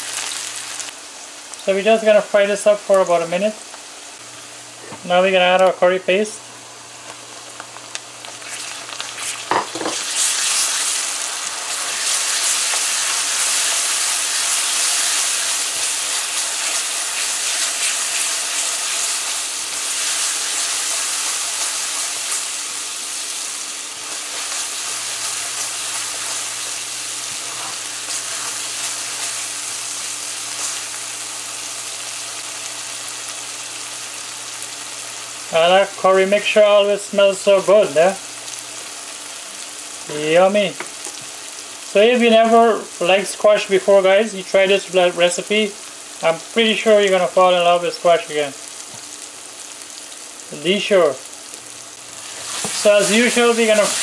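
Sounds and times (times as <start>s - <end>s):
curry paste sizzling in hot oil: 7.2s - 54.0s
spatula scraping and stirring: 24.0s - 29.5s, 52.2s - 54.0s.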